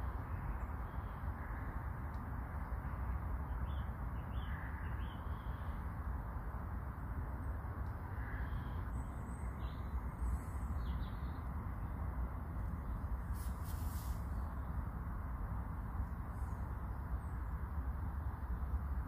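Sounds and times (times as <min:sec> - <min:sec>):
faint bird calls: 0:08.0 - 0:11.4.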